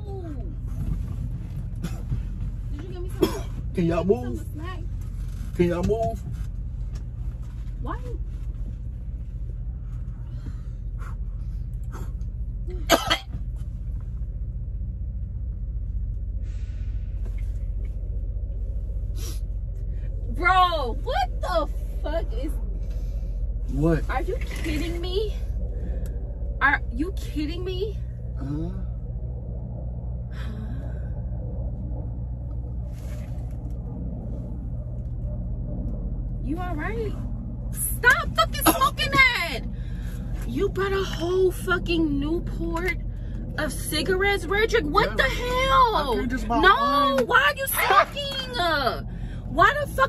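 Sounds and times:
truck engine idling: 0:00.0 - 0:50.0
person coughing: 0:03.2 - 0:03.6, 0:12.8 - 0:13.3.

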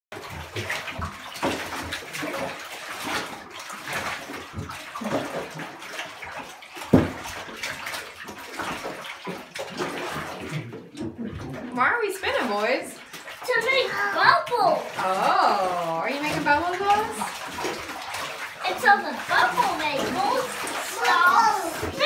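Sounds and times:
bathwater sloshing and splashing: 0:00.1 - 0:22.0
sharp splash or knock: 0:00.2 - 0:11.6.

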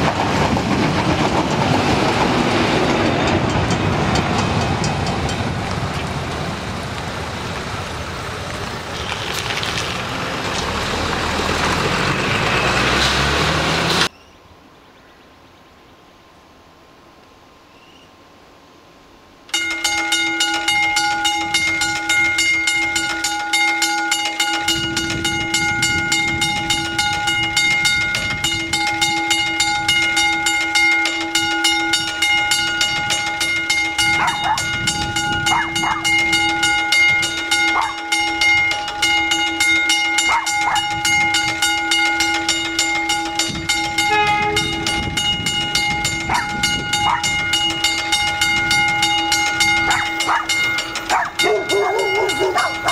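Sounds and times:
level crossing bell ringing: 0:19.5 - 0:52.9.

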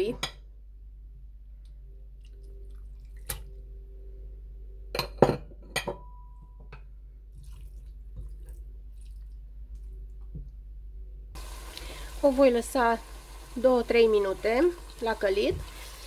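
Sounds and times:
low hum: 0:00.0 - 0:12.2.

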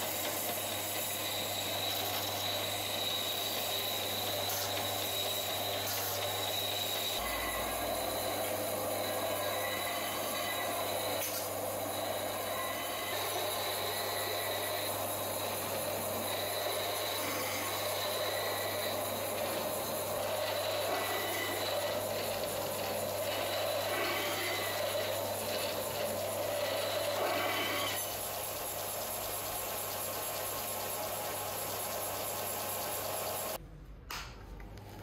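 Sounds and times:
belt grinder motor hum: 0:00.0 - 0:28.5
metal grinding on belt: 0:07.0 - 0:28.1.

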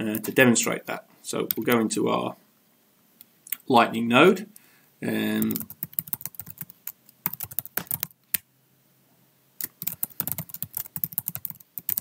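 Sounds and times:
typing on computer keyboard: 0:05.4 - 0:08.2, 0:09.6 - 0:12.0.

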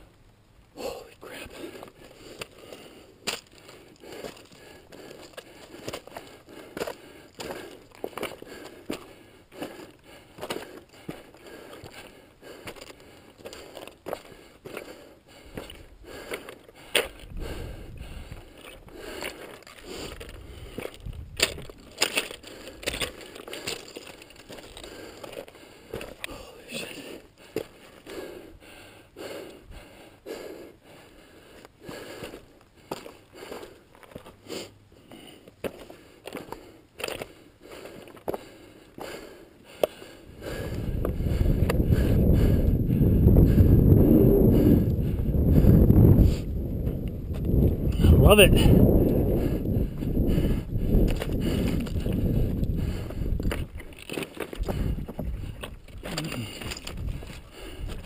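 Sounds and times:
scree crunching under boots: 0:01.3 - 0:17.3, 0:18.2 - 0:28.4, 0:51.0 - 0:58.0
stones shifting and scraping: 0:01.4 - 0:17.3, 0:18.3 - 0:28.1, 0:32.2 - 0:34.4, 0:35.4 - 0:38.5, 0:50.9 - 0:58.0
wind rumble on microphone: 0:17.2 - 0:19.1, 0:20.0 - 0:21.8, 0:40.3 - 0:58.0
sharp clicks of rock on rock: 0:18.7 - 0:26.4.

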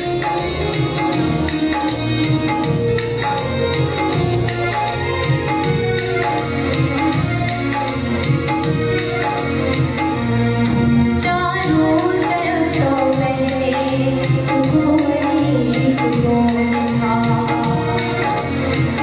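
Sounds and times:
hand drum and jingle percussion: 0:00.0 - 0:10.1.

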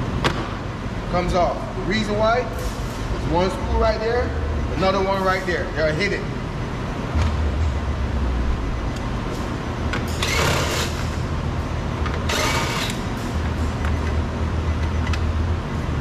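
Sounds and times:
steady low hum: 0:00.0 - 0:16.0
power tool bursts: 0:12.3 - 0:13.0.

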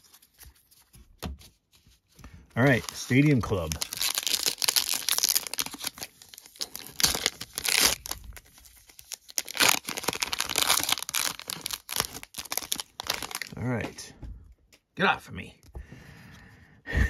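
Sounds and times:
plastic wrapper tearing and crinkling: 0:02.6 - 0:13.7.

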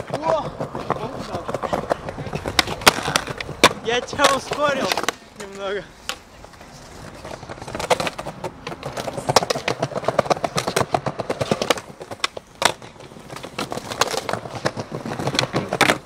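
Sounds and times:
skateboard clacks and knocks: 0:00.0 - 0:16.0
skateboard wheels rumbling: 0:00.0 - 0:16.0.

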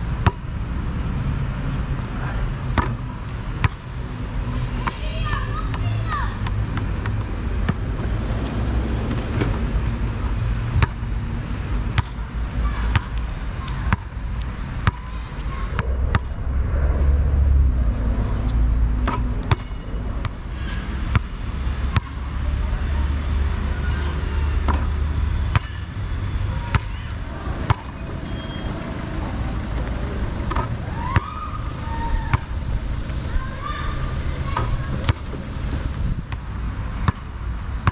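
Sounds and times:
cicadas droning: 0:00.0 - 0:37.9
basketball bouncing on asphalt: 0:00.2 - 0:00.6, 0:02.7 - 0:11.2, 0:11.8 - 0:16.3, 0:19.0 - 0:22.2, 0:24.0 - 0:25.8, 0:26.6 - 0:37.9
wind rumbling on microphone: 0:13.2 - 0:21.9, 0:25.9 - 0:37.5.

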